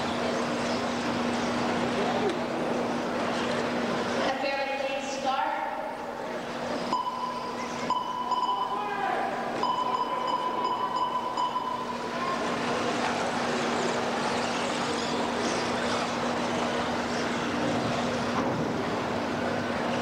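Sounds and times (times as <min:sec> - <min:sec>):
high steady tone: 0:06.9 - 0:09.0, 0:09.6 - 0:12.5
rc car motors whining: 0:12.0 - 0:19.1.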